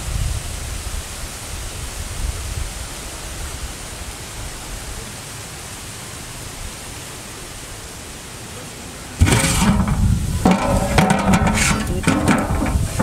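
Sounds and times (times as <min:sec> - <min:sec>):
wind noise on microphone: 0:00.0 - 0:04.9, 0:09.2 - 0:13.0
low rumble of wind buffeting: 0:09.2 - 0:13.0.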